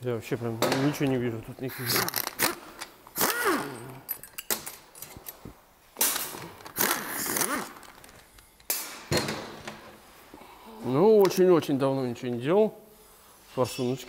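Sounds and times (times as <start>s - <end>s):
air ratchet whirring: 3.2s - 3.9s, 6.6s - 8.0s.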